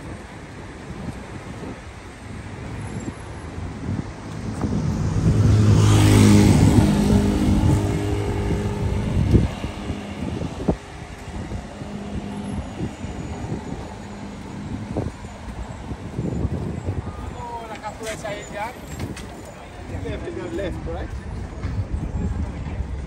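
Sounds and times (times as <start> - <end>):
city traffic: 0.0 - 23.0
vehicle passing close by: 3.0 - 19.2.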